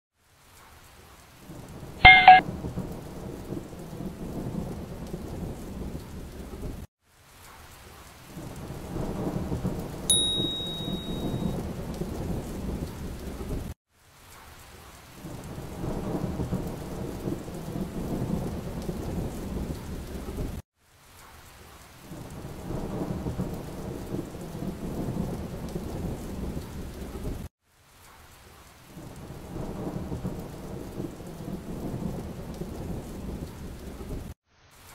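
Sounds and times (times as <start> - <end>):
rain: 0.1 - 34.9
thunder: 2.4 - 6.9, 8.4 - 10.1, 11.2 - 13.8, 15.2 - 20.6, 22.1 - 27.5, 29.0 - 34.4.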